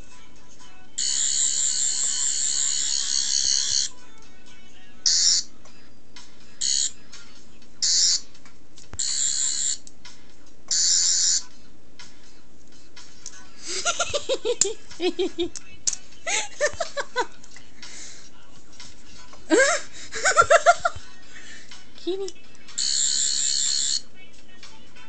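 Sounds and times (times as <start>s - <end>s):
toy high electronic buzz: 1.0s - 3.9s, 5.0s - 5.5s, 6.6s - 7.0s, 7.8s - 8.2s, 9.0s - 9.9s, 10.7s - 11.5s, 22.8s - 24.0s
person laughing: 13.6s - 15.6s, 16.2s - 17.4s, 19.5s - 22.4s.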